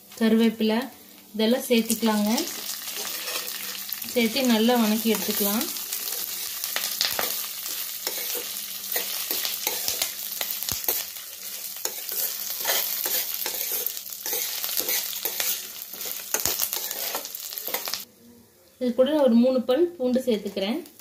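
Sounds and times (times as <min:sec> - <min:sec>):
food sizzling in hot oil: 0:00.0 - 0:18.1
ladle scraping pan: 0:02.9 - 0:03.8, 0:11.8 - 0:17.9.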